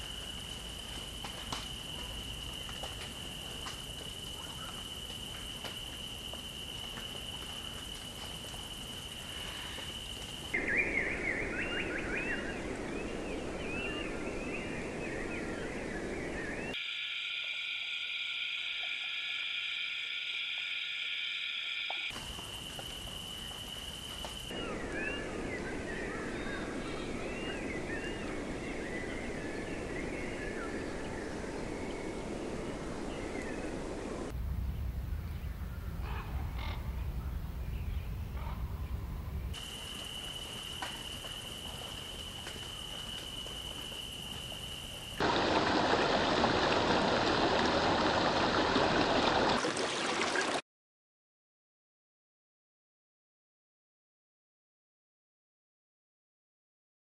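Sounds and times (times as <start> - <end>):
steady high tone: 16.8 - 22.1
low rumbling: 34.1 - 39.6
steady rushing hiss: 39.5 - 46.2.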